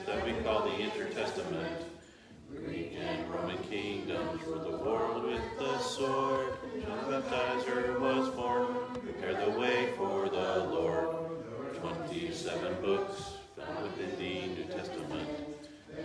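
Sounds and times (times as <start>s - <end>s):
children reciting in unison: 0.0s - 16.0s.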